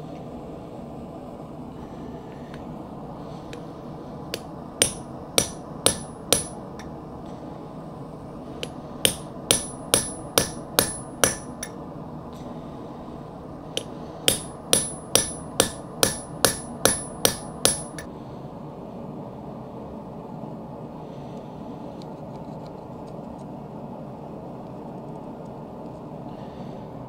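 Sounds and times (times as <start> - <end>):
hammer ringing on anvil: 4.3 - 6.9, 8.6 - 11.8, 13.8 - 18.1.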